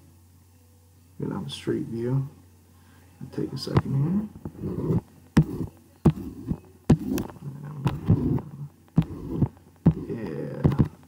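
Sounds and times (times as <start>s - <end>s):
low dull thumps: 3.8s - 11.0s.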